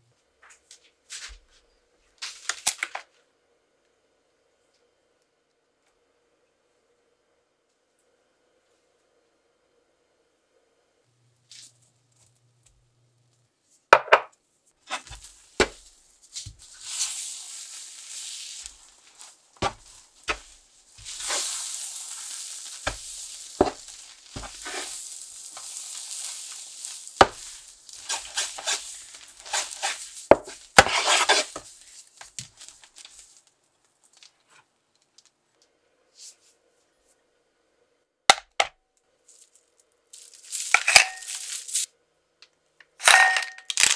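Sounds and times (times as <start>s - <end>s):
spatula scraping frying pan: 14.9s - 31.8s.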